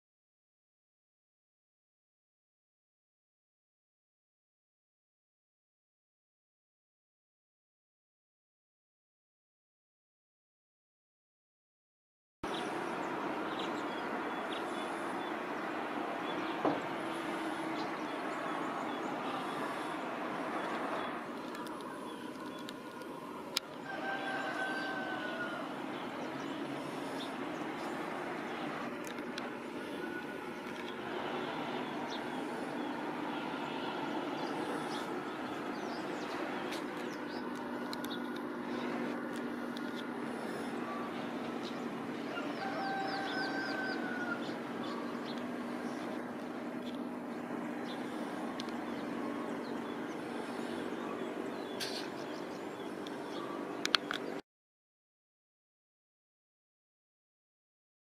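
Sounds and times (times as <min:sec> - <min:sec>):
low hum: 0:12.4 - 0:54.4
outdoor background noise: 0:12.4 - 0:54.4
clicks: 0:53.8 - 0:54.4.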